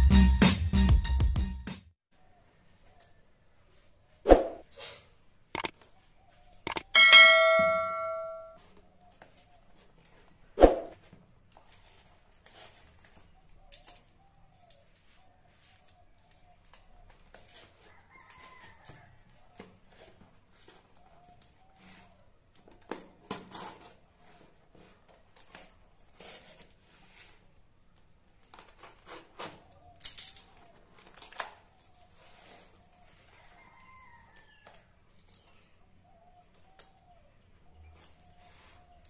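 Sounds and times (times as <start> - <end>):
ringing tone: 6.7 - 8.6
cardboard parcel handled on countertop: 30.6 - 34.3.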